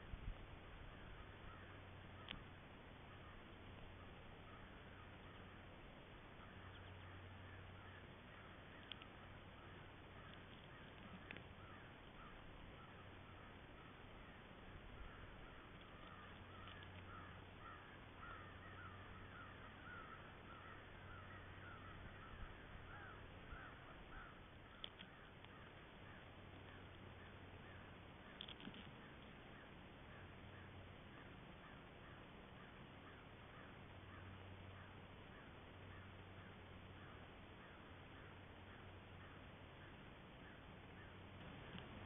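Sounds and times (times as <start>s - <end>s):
low steady hum: 0.0s - 42.0s
faint bird calls: 0.2s - 42.0s.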